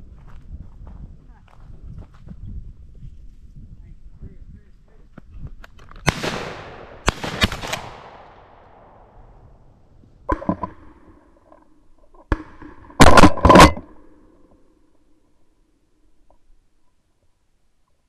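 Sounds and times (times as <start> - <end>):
sharp cracks: 5.6 - 9.2
shotgun blast: 6.1 - 9.2.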